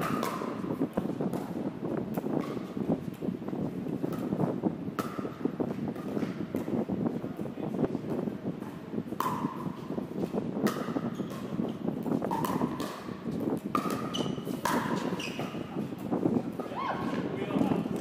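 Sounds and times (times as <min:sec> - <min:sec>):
ball bouncing on court: 0:00.0 - 0:03.2, 0:04.0 - 0:07.4, 0:08.1 - 0:18.0
paddles striking plastic ball: 0:10.6 - 0:15.6.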